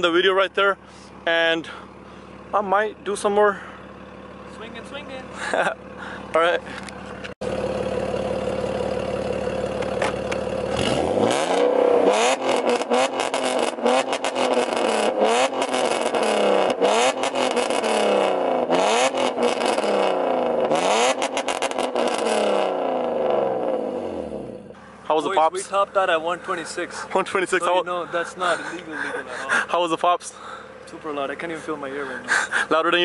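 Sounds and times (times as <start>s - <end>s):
car exhaust revving: 0.8s - 33.0s
exhaust pops and crackles: 6.7s - 23.5s.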